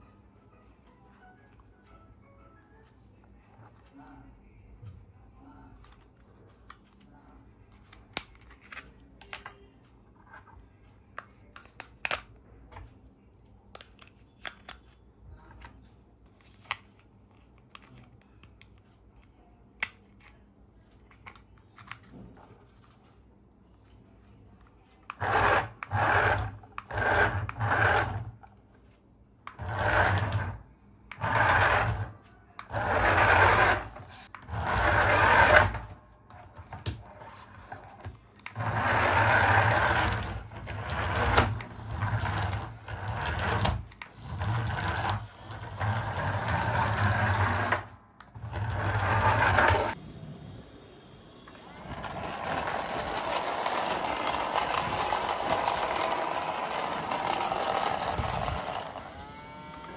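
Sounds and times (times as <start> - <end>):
toy car motor whirring: 25.1 - 28.5, 29.5 - 36.0, 37.2 - 50.0, 51.6 - 59.9.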